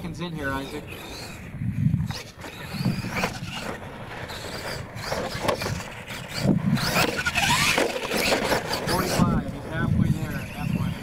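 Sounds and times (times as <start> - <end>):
toy truck motor whine: 0.4 - 11.0
tyres scrabbling on dirt: 2.0 - 11.0.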